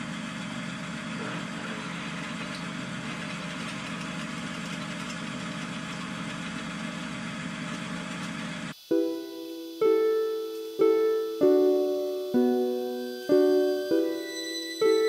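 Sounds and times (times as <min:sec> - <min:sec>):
pillar drill running: 0:00.0 - 0:08.8
piano music: 0:08.9 - 0:15.0.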